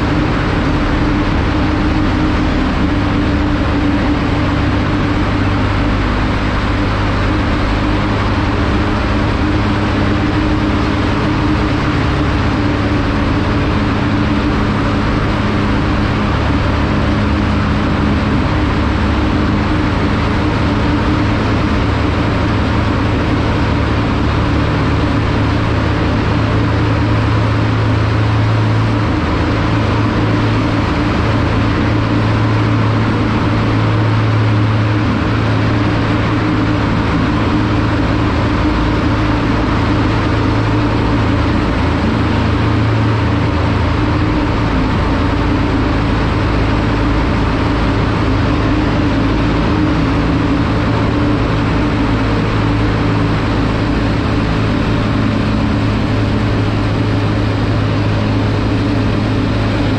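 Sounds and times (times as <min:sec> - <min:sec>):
motorcycle engine cruising: 0:00.0 - 0:59.9
wind and road noise: 0:00.0 - 0:59.9.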